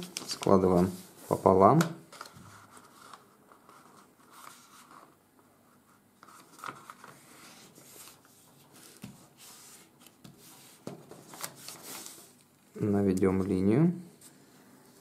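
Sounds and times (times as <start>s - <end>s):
paper rustling being folded: 0.0s - 5.5s, 6.2s - 12.5s.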